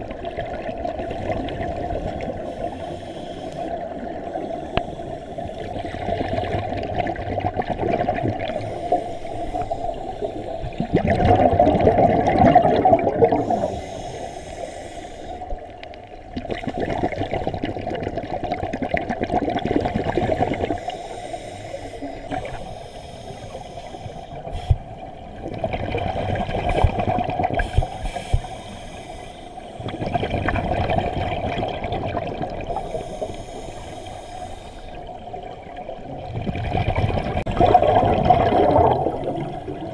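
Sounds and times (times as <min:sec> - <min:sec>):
regulator breathing bubbles underwater: 0:00.9 - 0:06.9, 0:08.0 - 0:15.7, 0:19.6 - 0:35.3.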